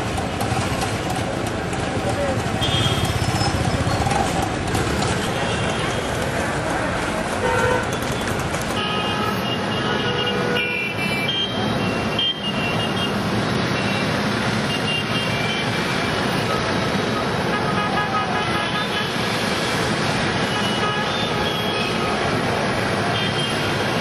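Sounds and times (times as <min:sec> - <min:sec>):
road traffic drone: 0:00.0 - 0:24.0
vehicle horns tooting: 0:02.6 - 0:03.6, 0:07.4 - 0:08.0, 0:08.7 - 0:13.2.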